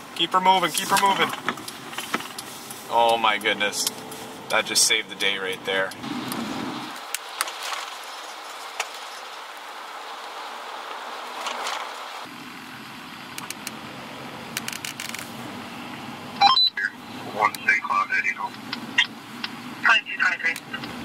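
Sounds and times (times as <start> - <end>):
traffic hiss on slushy road: 0.0 - 4.5, 6.4 - 13.2.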